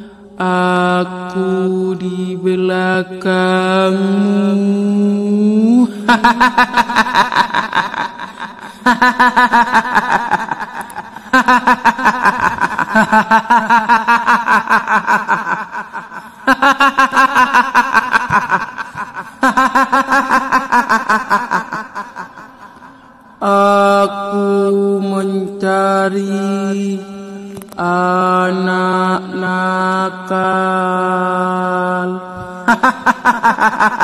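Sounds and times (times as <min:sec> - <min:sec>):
woman cackling laugh: 0:06.1 - 0:23.0, 0:32.6 - 0:34.0.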